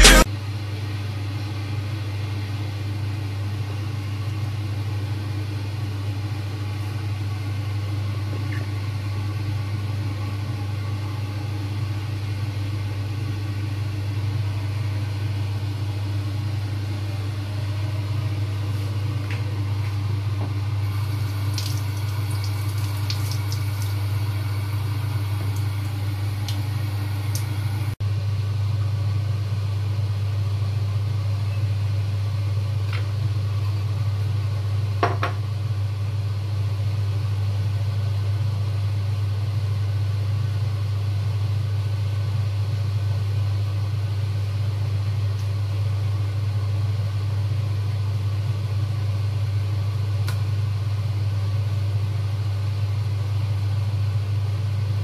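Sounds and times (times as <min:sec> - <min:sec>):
steady low hum: 0:00.0 - 0:00.3, 0:02.3 - 0:29.2.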